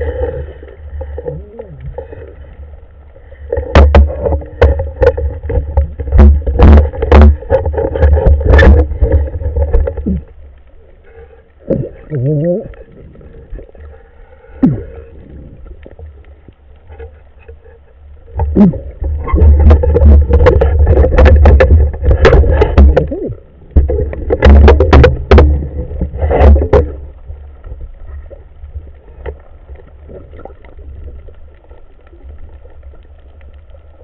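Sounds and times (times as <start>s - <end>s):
low underwater rumble: 0.0s - 34.0s
sharp knocks and clicks: 3.5s - 10.2s, 18.4s - 27.0s.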